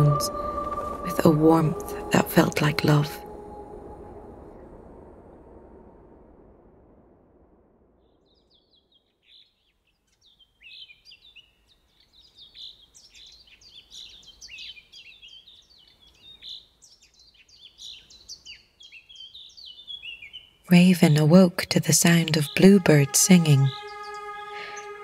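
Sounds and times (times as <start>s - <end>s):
birds chirping: 8.0s - 25.0s.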